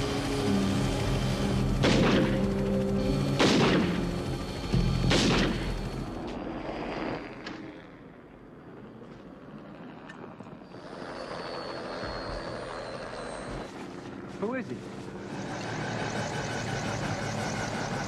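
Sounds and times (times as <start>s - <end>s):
film score low notes: 0.0s - 6.6s
rifle shots with echo: 1.8s - 2.4s, 3.4s - 4.0s, 5.1s - 5.7s.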